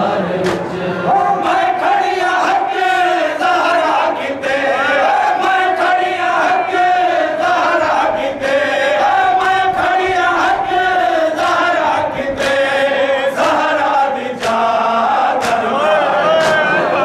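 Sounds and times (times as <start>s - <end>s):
crowd of men chanting: 0.0s - 17.0s
lead reciter: 0.0s - 17.0s
chest-beating slaps: 0.4s - 0.8s, 13.4s - 14.8s, 15.4s - 16.9s.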